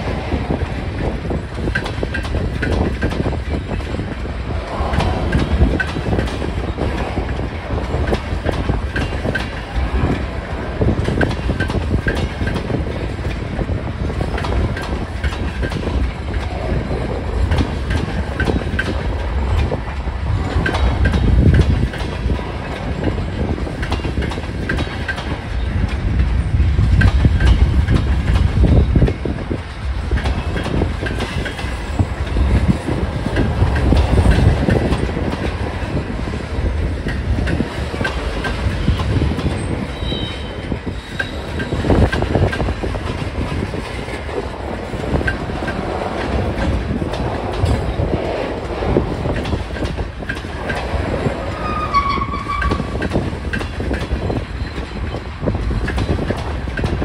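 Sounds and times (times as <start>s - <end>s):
freight train rumbling past: 0.0s - 57.0s
high wheel squeals: 39.6s - 41.8s, 51.5s - 53.0s.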